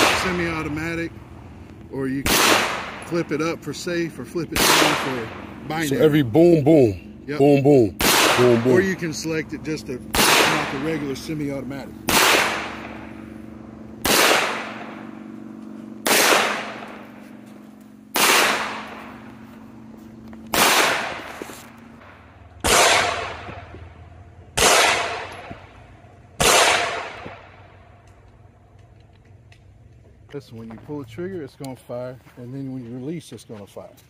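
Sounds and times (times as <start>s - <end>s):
pistol shots: 0.0s - 0.8s, 2.2s - 3.5s, 4.4s - 5.6s, 8.0s - 9.1s, 10.1s - 11.3s, 12.0s - 17.4s, 18.0s - 19.4s, 20.5s - 21.5s, 22.6s - 23.7s, 24.6s - 25.8s, 26.4s - 27.6s.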